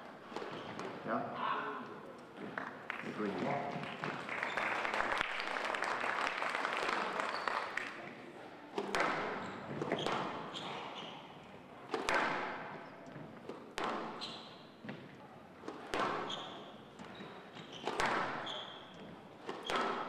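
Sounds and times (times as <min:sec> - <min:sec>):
audience applause: 0:03.8 - 0:08.1
squash ball smacks: 0:08.8 - 0:10.7, 0:11.9 - 0:12.8, 0:13.5 - 0:17.1, 0:17.8 - 0:20.0.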